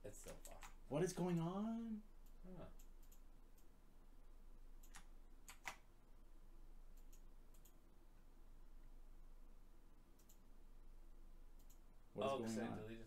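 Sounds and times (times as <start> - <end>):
low steady hum: 0.0 - 13.0
mouse and keyboard clicks: 4.8 - 5.8, 10.2 - 10.4.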